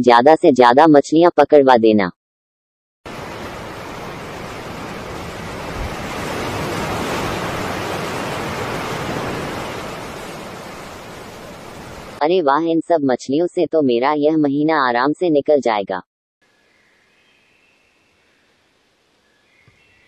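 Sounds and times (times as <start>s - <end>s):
sea waves rushing: 3.1s - 12.2s.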